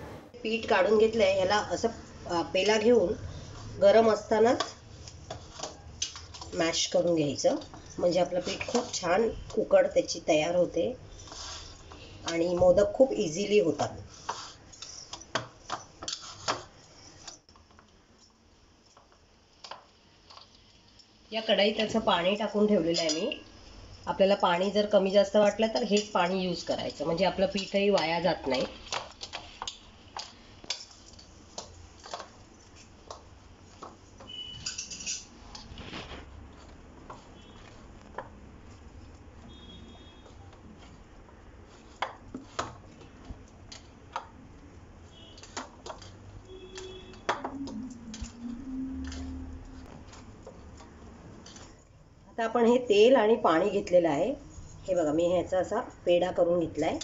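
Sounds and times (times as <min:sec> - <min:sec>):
hands kneading dough: 0:02.6 - 0:18.2, 0:35.4 - 0:51.9.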